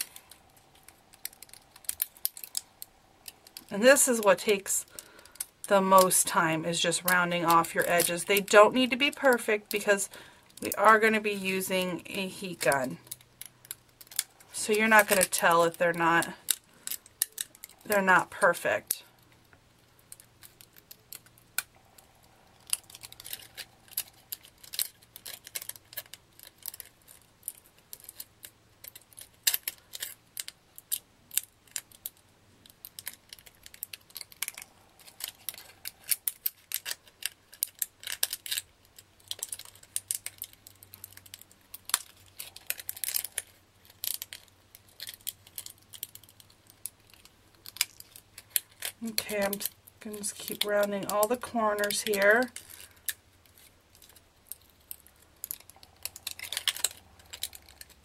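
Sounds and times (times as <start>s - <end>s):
scissors snipping plastic: 32.8s - 58.0s.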